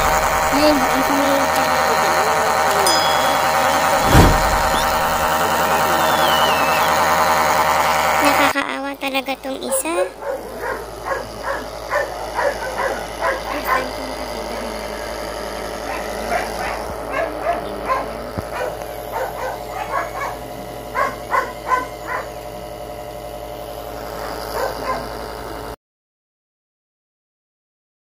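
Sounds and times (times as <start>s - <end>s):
low hum: 2.8s - 6.6s
puppies crying: 9.6s - 14.0s, 15.8s - 22.4s, 24.2s - 25.2s.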